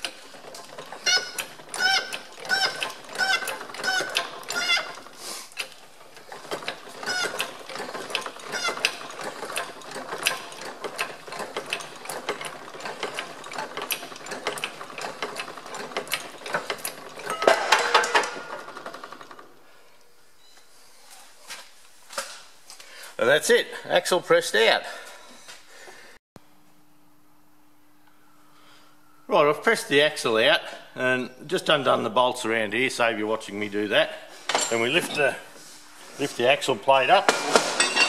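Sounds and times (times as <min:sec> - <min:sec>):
metal clicking and creaking: 0:00.0 - 0:19.5
high metal squeaks: 0:00.5 - 0:10.6.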